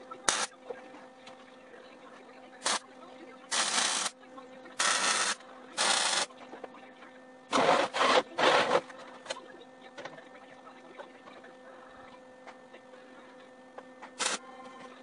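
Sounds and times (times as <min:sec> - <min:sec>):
welder arc crackling: 0:00.0 - 0:00.6, 0:02.6 - 0:02.8, 0:03.5 - 0:04.1, 0:04.8 - 0:06.3, 0:14.2 - 0:14.4
steady hum: 0:00.0 - 0:15.0
rough bursts of welding noise: 0:00.3 - 0:00.5, 0:02.6 - 0:02.8, 0:03.5 - 0:04.1, 0:04.8 - 0:06.3, 0:14.2 - 0:14.4.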